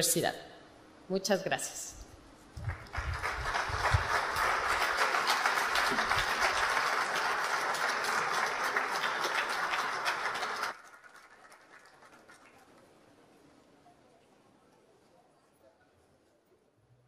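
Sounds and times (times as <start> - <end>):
audience applauding: 2.6 - 13.0.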